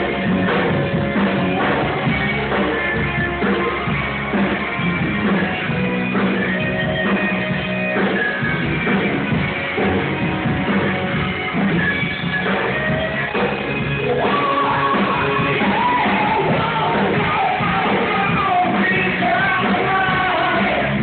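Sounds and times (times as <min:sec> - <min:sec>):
loud rock band music: 0:00.0 - 0:21.0.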